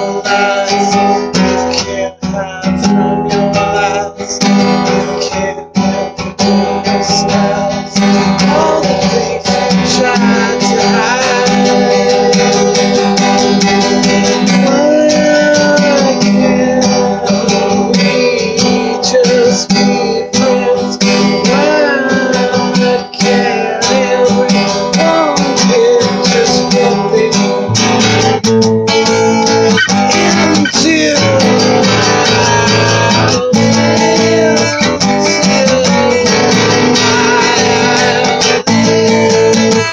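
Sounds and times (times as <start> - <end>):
acoustic guitar strumming: 0.0 - 39.9
man singing: 0.0 - 39.9.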